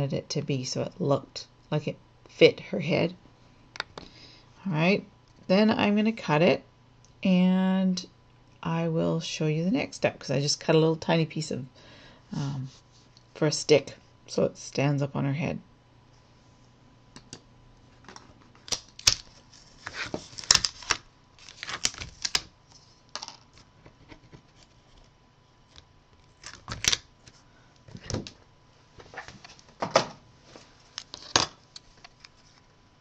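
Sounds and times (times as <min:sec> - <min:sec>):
paper rustling: 0:18.6 - 0:28.3.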